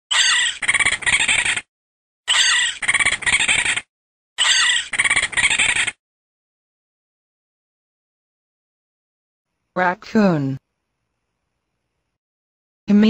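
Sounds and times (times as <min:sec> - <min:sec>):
raccoon chittering squeals: 0:00.1 - 0:01.7, 0:02.3 - 0:06.0.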